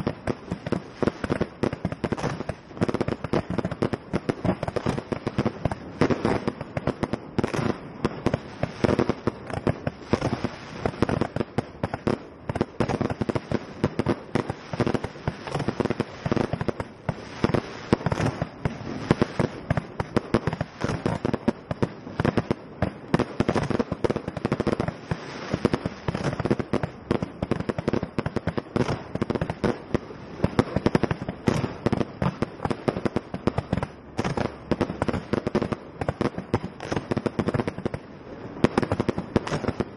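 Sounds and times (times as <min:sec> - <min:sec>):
fireworks bangs and pops: 0:00.0 - 0:39.9.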